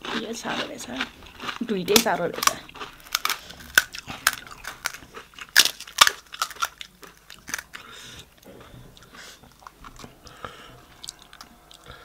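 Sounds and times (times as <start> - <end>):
crisp shells cracking: 1.3 - 8.4, 9.5 - 10.3, 10.9 - 11.9.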